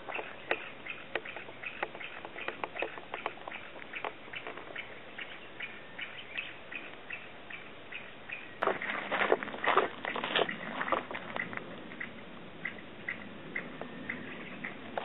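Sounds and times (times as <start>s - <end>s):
short chirping calls: 0.0s - 9.0s.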